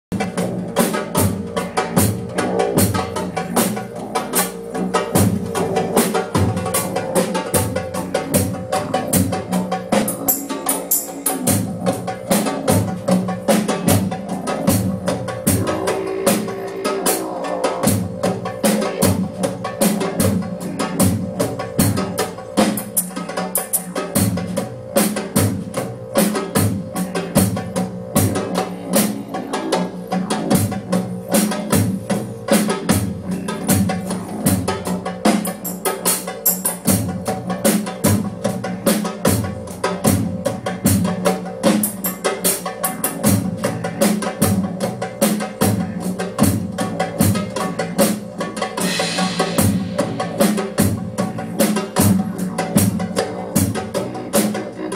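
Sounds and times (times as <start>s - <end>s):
drum kit beat: 0.1s - 54.9s
live band music: 0.1s - 54.9s
sustained pitched tones: 0.2s - 36.0s, 45.8s - 54.9s.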